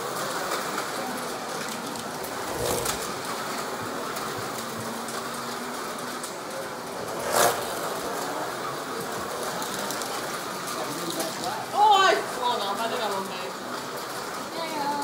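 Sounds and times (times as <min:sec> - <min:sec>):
small motor whir: 0:02.3 - 0:03.2
slot car whizzing past: 0:02.4 - 0:03.2, 0:07.1 - 0:08.0.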